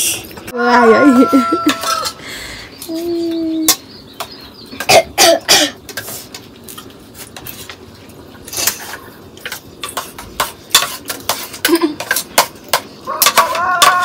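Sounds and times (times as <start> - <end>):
spoons scraping on plates: 1.3 - 2.2, 5.7 - 14.0
throaty coughs: 4.8 - 5.8.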